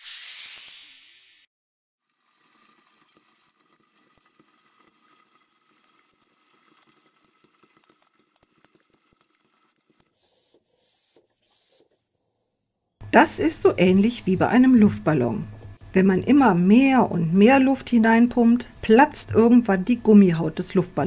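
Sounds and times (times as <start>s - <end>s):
oil sizzling: 2.0s - 10.8s
popcorn popping: 2.1s - 11.3s.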